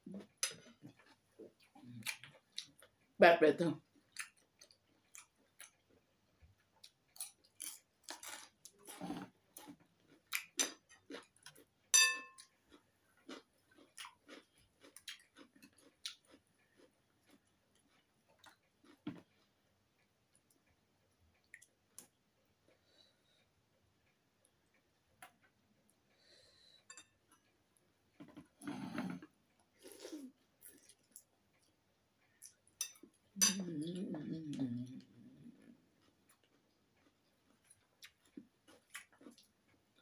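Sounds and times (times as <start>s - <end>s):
chewing noodles: 0.2s - 3.2s, 3.8s - 33.4s, 34.4s - 40.0s
metal clinking on bowl: 11.9s - 12.5s, 32.8s - 33.7s.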